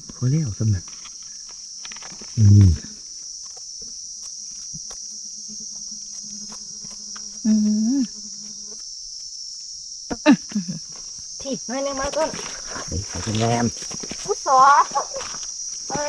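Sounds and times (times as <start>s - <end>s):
insect chorus: 0.0s - 16.0s
crackles of movement: 0.8s - 5.0s, 11.0s - 16.0s
person humming: 2.4s - 2.9s, 7.4s - 8.2s.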